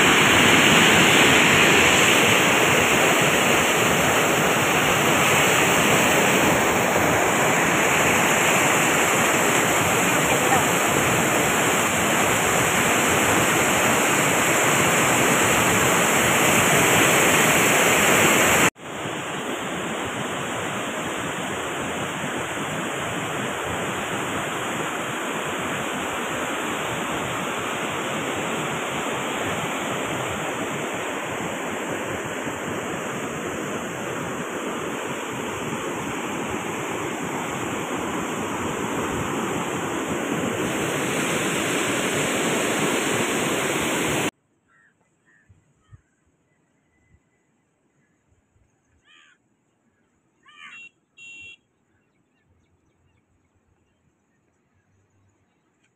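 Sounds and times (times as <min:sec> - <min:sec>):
floodwater rushing: 0:00.0 - 0:44.3.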